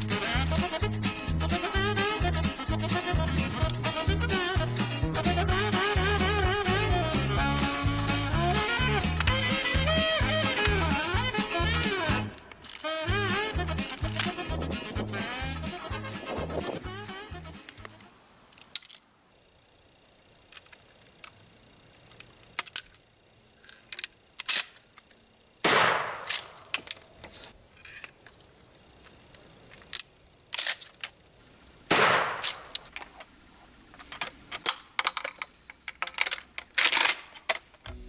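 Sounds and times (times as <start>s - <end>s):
shotgun loading clicks and clacks: 0.0s - 19.1s, 20.5s - 21.4s, 22.0s - 23.0s, 23.6s - 28.4s, 29.0s - 31.2s, 31.9s - 33.3s, 33.9s - 37.9s
loud gun clatters: 31.9s - 33.0s, 34.1s - 37.8s.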